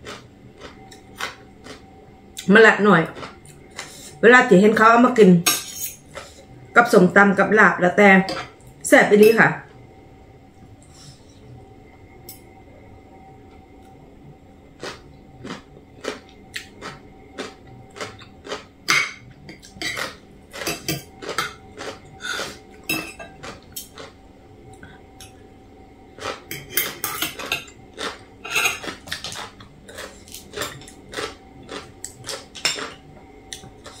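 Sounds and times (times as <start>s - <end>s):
cutlery clinking on metal plate: 18.9s - 21.6s, 22.9s - 23.4s, 26.5s - 27.7s, 28.4s - 29.5s, 32.3s - 33.0s.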